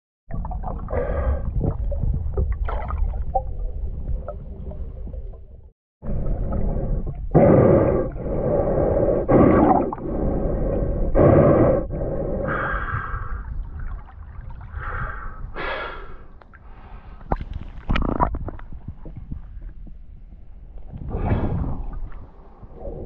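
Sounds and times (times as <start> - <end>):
heavy breathing through snorkel: 6.6 - 13.5, 14.7 - 17.3
water sloshing: 13.4 - 15.3.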